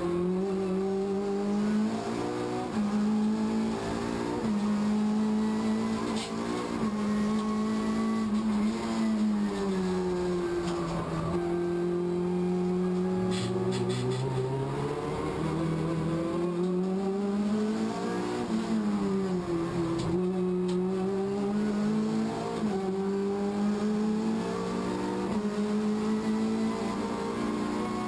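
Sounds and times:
race car engine at speed: 0.0s - 28.0s.

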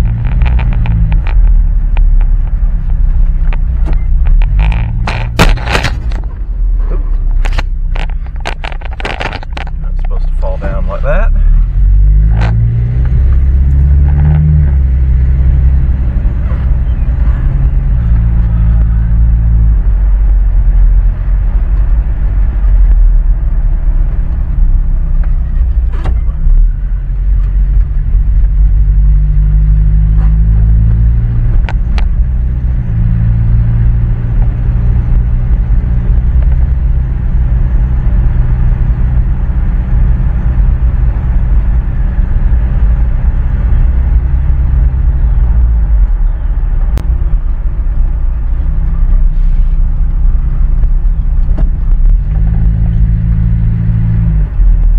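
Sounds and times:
pickup truck engine: 0.0s - 54.9s
road rumble: 0.0s - 54.9s.

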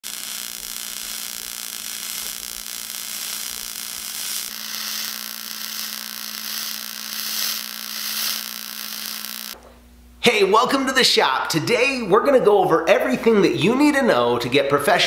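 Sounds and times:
welding arc hissing buzz: 0.0s - 9.6s.

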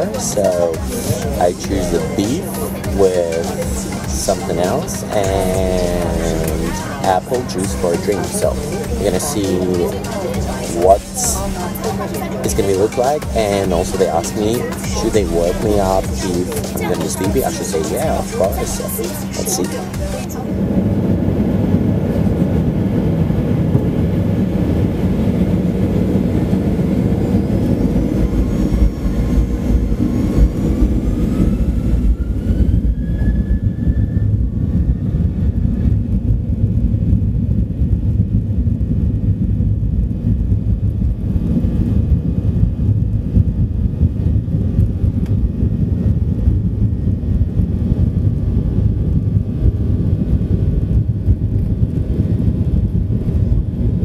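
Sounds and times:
jet engines spooling up: 0.0s - 36.4s
takeoff roll rumble: 0.0s - 54.0s.

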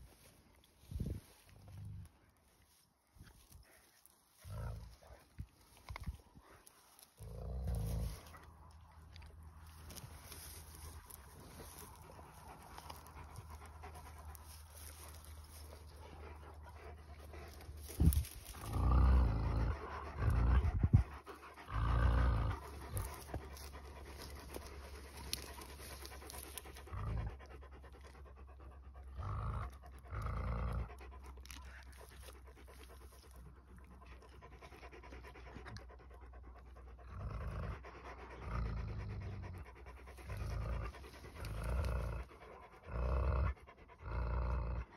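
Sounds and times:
dogs breathing hard: 0.0s - 44.9s
dog digging: 3.1s - 36.0s.

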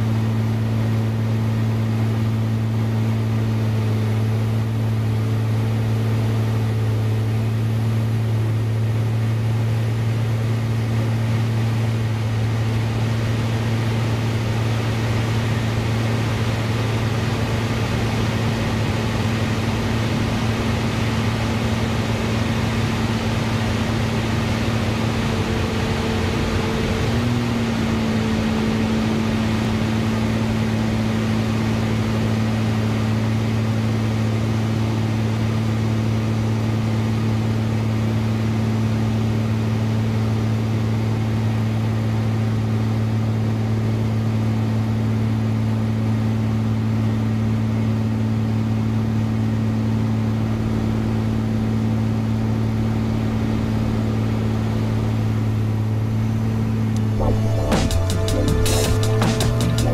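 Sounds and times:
plane engine and propeller drone: 0.0s - 59.9s
rush of noise: 56.6s - 59.9s.

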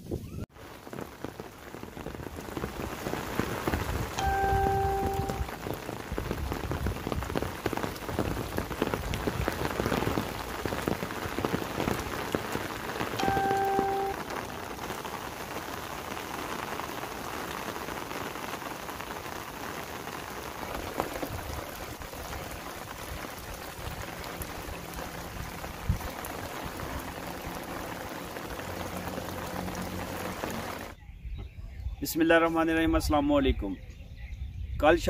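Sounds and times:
steady rain on leaves: 0.5s - 31.0s.

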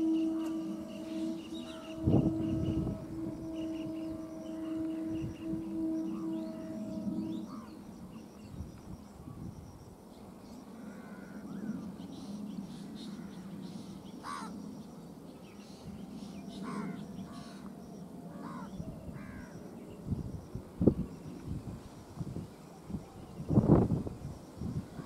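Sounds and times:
birds calling: 0.0s - 8.6s, 10.2s - 14.7s
horn-like tone: 0.0s - 9.8s.

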